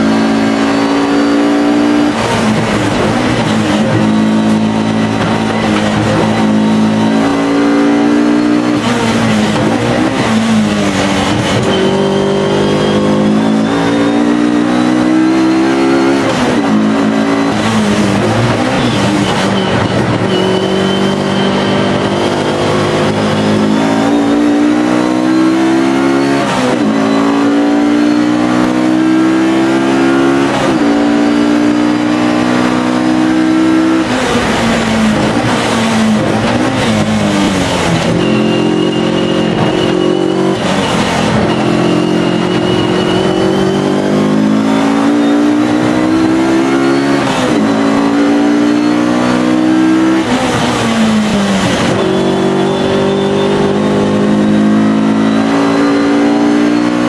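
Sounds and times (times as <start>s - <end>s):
racing car engine: 0.0s - 57.0s
high whine: 32.7s - 56.8s.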